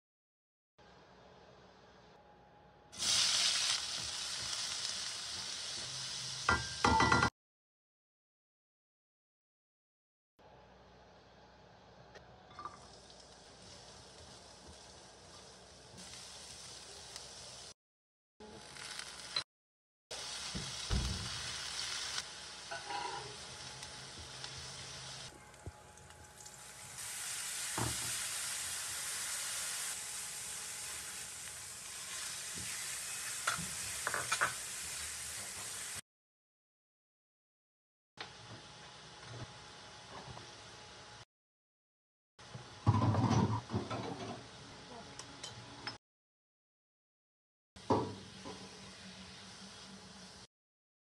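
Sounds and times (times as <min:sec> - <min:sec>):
vegetables sizzling in hot oil: 0:03.0 - 0:07.0, 0:12.8 - 0:17.8, 0:18.4 - 0:19.4, 0:20.1 - 0:36.0, 0:47.8 - 0:50.5.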